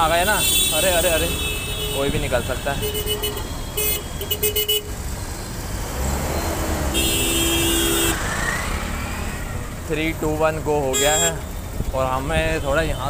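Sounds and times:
vehicle horns honking: 0:00.0 - 0:05.1, 0:06.8 - 0:08.4, 0:10.9 - 0:11.6
idling traffic rumble: 0:00.0 - 0:13.0.

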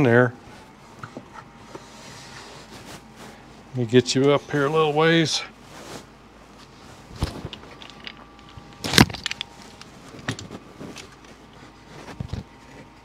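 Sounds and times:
metal parts clicking and knocking: 0:07.4 - 0:09.5.

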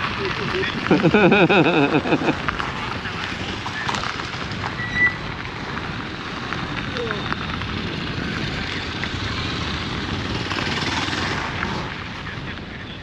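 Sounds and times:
steady rushing noise: 0:00.0 - 0:13.0.

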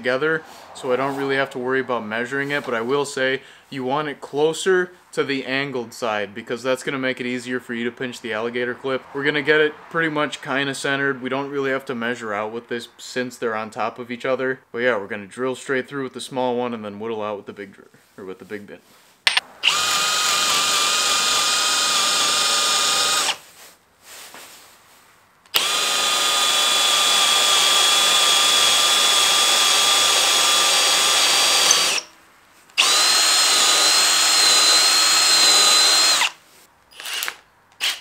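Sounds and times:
cordless drill motor whining: 0:19.6 - 0:23.4, 0:25.6 - 0:32.1, 0:32.8 - 0:38.0.

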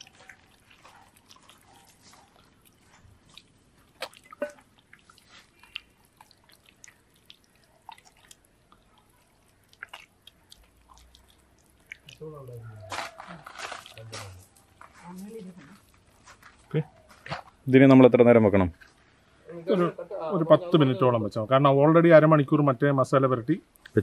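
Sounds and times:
hands squelching paste into chicken: 0:00.0 - 0:14.8.

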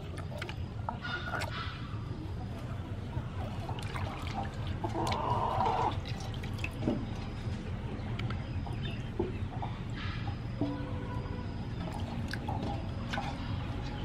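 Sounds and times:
water splashing in metal basin: 0:00.0 - 0:02.1, 0:03.1 - 0:07.6, 0:10.3 - 0:14.0.

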